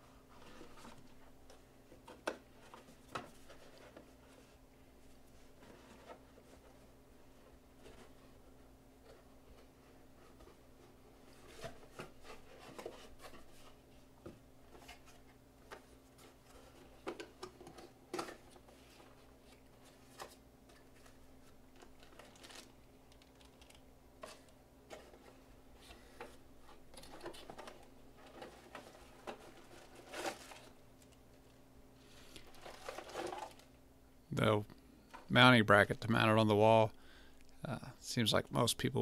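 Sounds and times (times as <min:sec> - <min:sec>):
steady low hum: 0:00.0 - 0:39.0
cardboard packaging rustling: 0:14.7 - 0:31.2, 0:32.1 - 0:33.8.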